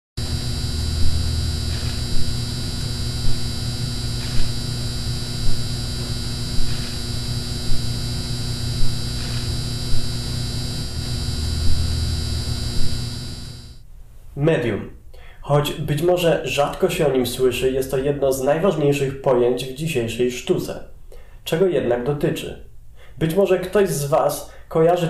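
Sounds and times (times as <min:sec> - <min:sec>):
ambient electronic music: 0:00.2 - 0:13.8.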